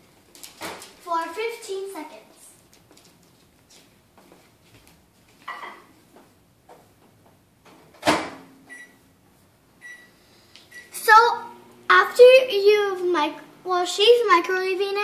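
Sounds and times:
short keypad beeps: 0:08.7 - 0:09.0, 0:09.8 - 0:10.1.

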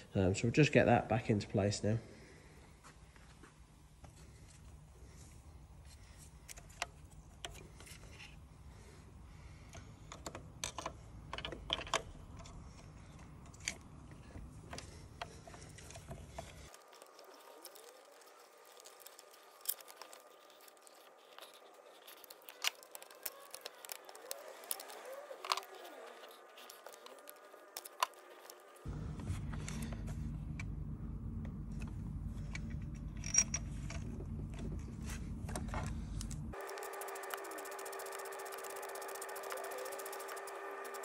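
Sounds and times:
steady low rumble: 0:28.8 - 0:36.6.

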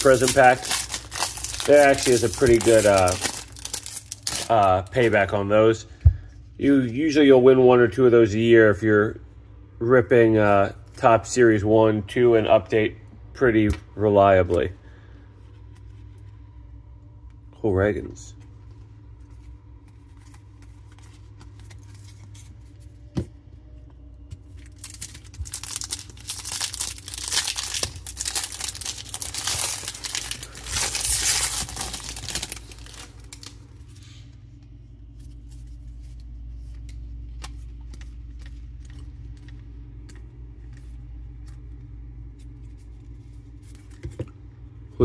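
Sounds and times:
wrapper tearing and crinkling: 0:00.0 - 0:05.1, 0:24.6 - 0:33.7.

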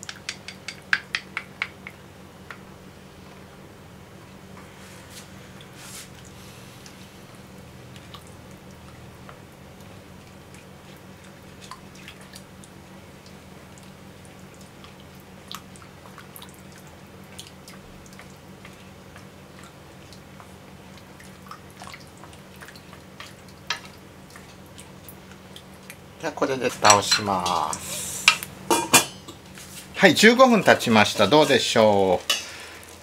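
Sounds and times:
chopsticks clicking against pan: 0:00.0 - 0:02.6.

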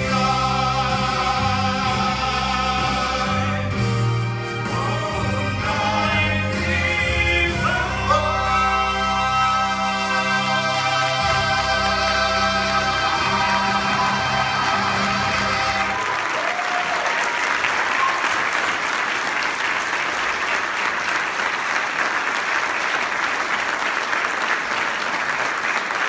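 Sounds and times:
vocal performance with accompaniment: 0:00.0 - 0:16.9
audience applause: 0:10.8 - 0:26.0.

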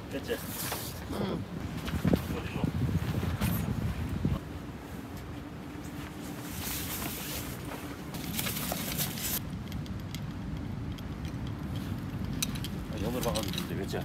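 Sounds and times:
wind rumbling on microphone: 0:00.9 - 0:08.3.

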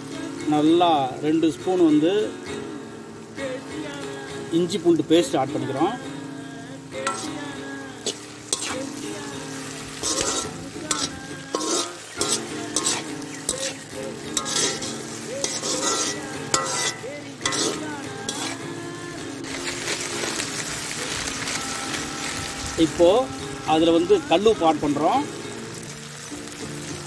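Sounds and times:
food sizzling in oil: 0:00.0 - 0:27.0
ladle scraping a pan: 0:07.0 - 0:09.0, 0:09.6 - 0:18.7
ladle striking pan: 0:07.0 - 0:09.0, 0:09.9 - 0:18.6.

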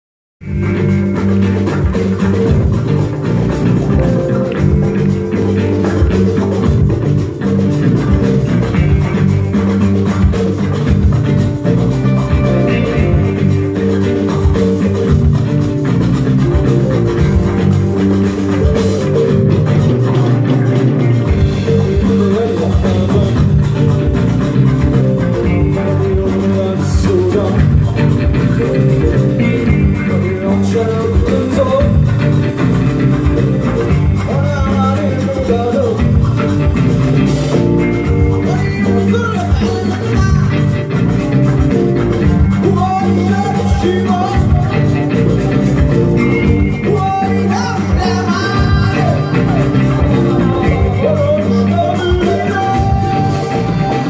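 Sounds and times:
bass: 0:00.4 - 0:54.0
electric guitars: 0:00.4 - 0:54.0
hand drums: 0:00.4 - 0:54.0
live rock band playing: 0:00.4 - 0:54.0
man singing: 0:19.0 - 0:24.2, 0:25.6 - 0:32.7, 0:34.2 - 0:36.4, 0:38.2 - 0:40.9, 0:42.5 - 0:45.5, 0:46.2 - 0:54.0.

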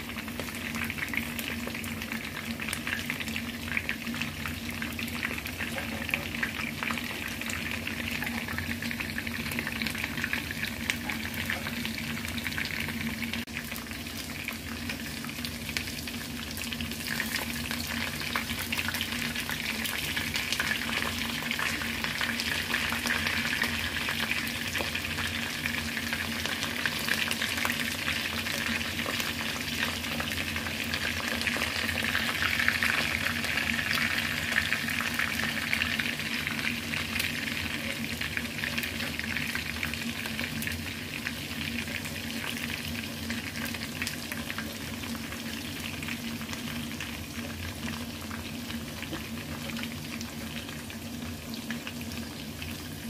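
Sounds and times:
chicken sizzling in oil: 0:00.0 - 0:53.0.

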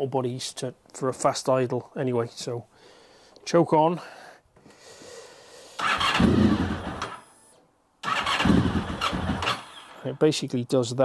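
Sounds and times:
motorcycle engine starting and dying: 0:05.8 - 0:07.4, 0:08.0 - 0:10.2.

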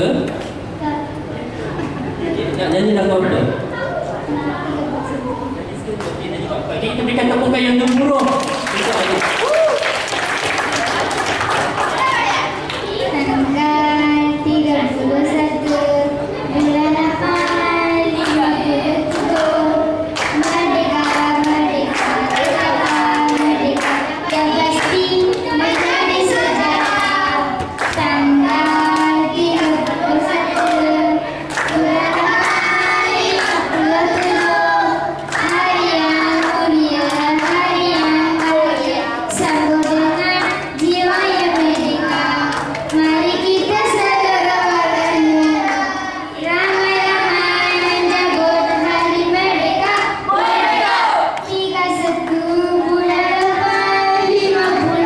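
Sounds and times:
boy singing into a microphone: 0:13.0 - 0:50.3, 0:51.4 - 0:55.0.

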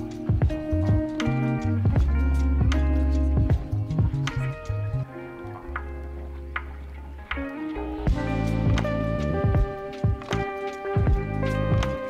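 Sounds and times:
instrumental music with steady beat: 0:00.0 - 0:12.0
drum hits: 0:00.3 - 0:04.5, 0:08.1 - 0:12.0.

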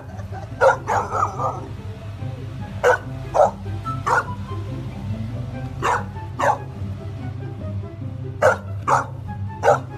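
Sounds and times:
background music: 0:00.0 - 0:09.9
puppy barking: 0:00.6 - 0:01.7, 0:02.8 - 0:04.4, 0:05.8 - 0:06.7, 0:08.4 - 0:09.9.

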